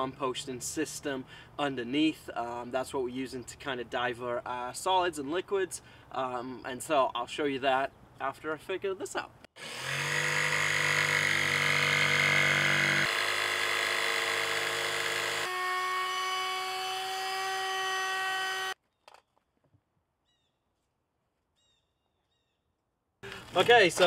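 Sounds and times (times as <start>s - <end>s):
electric jigsaw cutting plywood: 9.6s - 18.8s
wood router running: 9.6s - 18.8s.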